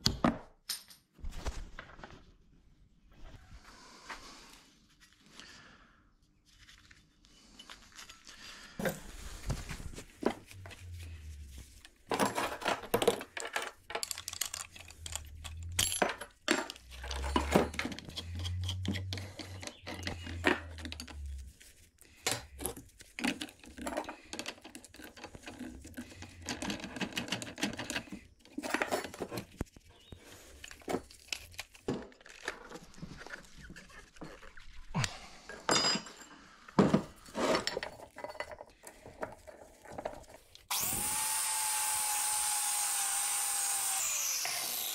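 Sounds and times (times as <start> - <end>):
metal tools clinking on steel bench: 12.1 - 21.2, 35.5 - 36.5.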